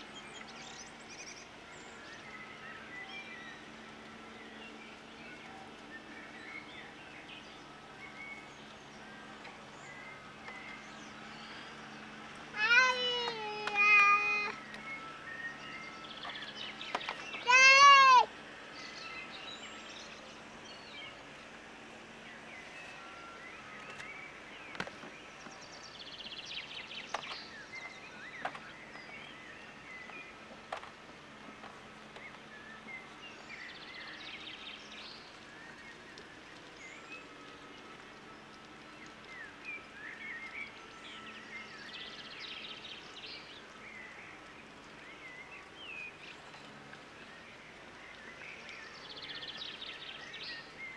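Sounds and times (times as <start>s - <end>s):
low steady hum: 0.0s - 50.9s
toddler wailing: 12.6s - 14.6s, 17.4s - 18.3s.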